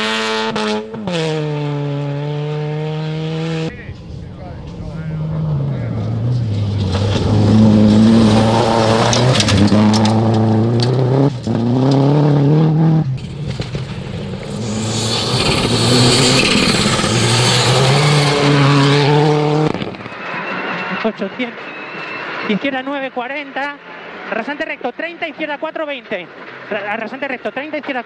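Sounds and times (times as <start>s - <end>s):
rally car engines revving: 0.0s - 24.7s
gravel spraying: 14.4s - 18.0s.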